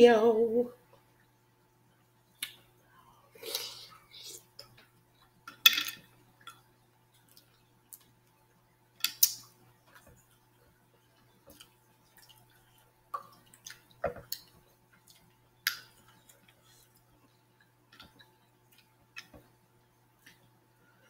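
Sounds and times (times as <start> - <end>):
wet eating smacks and clicks: 9.1 - 19.4.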